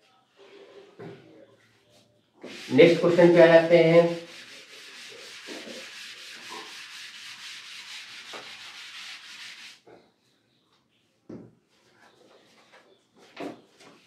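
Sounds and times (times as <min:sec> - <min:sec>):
steady rubbing hiss: 0:02.4 - 0:09.8.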